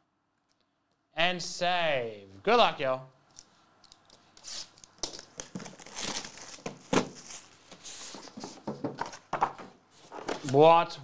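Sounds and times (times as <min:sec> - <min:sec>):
plastic shrink wrap crinkling: 0:03.8 - 0:08.5.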